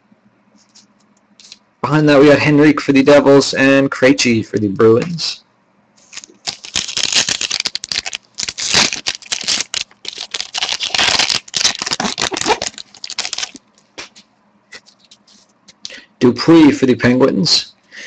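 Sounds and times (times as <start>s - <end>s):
foil wrapper crinkling and tearing: 6.0s - 14.1s.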